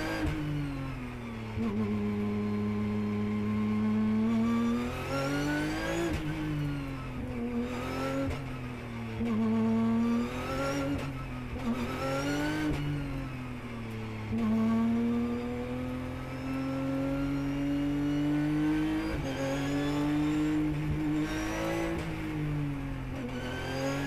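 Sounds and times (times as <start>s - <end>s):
race car engine revving: 14.1s - 22.5s.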